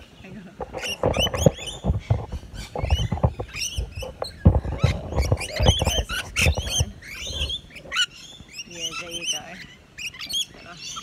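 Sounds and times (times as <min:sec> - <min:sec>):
lorikeets chattering and screeching: 0:00.1 - 0:11.0.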